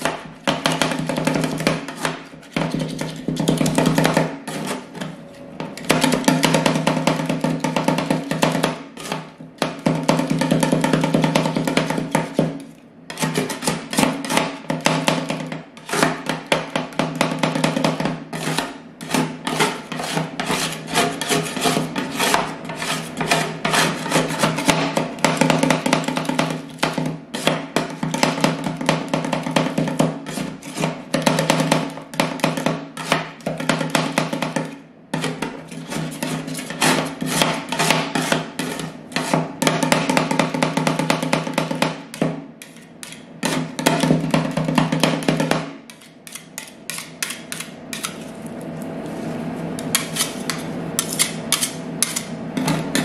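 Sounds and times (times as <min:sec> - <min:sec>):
metal spatulas chopping and scraping: 0:00.0 - 0:48.6, 0:49.8 - 0:53.0.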